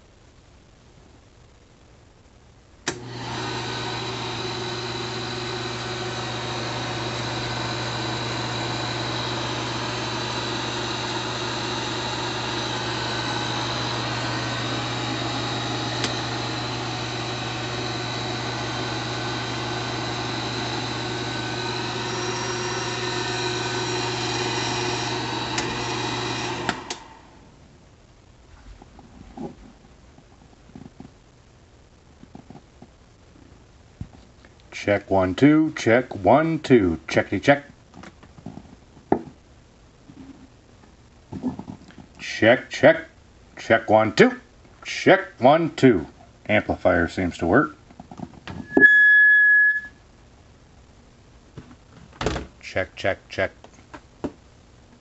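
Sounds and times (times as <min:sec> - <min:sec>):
projector motor humming and whirring: 0:02.8 - 0:27.5
projector switch click: 0:02.9 - 0:03.1, 0:16.0 - 0:16.2.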